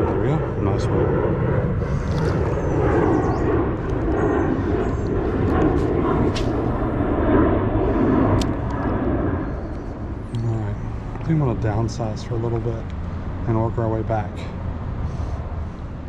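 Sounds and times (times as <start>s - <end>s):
airplane droning overhead: 0.0s - 16.0s
small birds chirping: 1.9s - 5.4s
sharp clicks: 8.4s - 8.9s.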